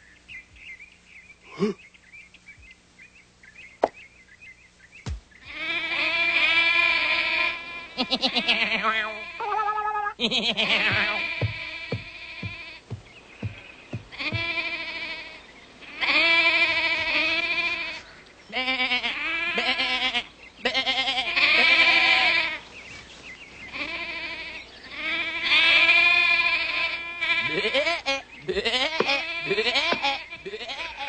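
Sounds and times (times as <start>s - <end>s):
cartoon voice bleat-like cries: 8.0s - 11.4s
short knocks: 10.9s - 14.6s.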